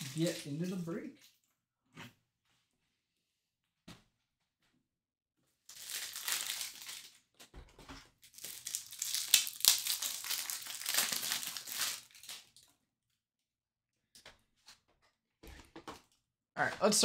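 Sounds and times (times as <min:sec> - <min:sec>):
plastic wrapping crinkling: 0:00.0 - 0:00.8, 0:05.7 - 0:07.2, 0:08.2 - 0:12.7.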